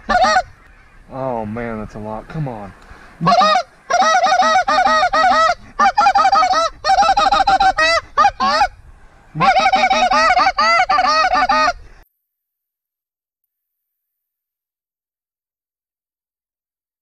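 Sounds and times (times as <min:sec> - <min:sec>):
goose call clucks: 0:00.0 - 0:00.8, 0:03.2 - 0:08.7, 0:09.3 - 0:11.8.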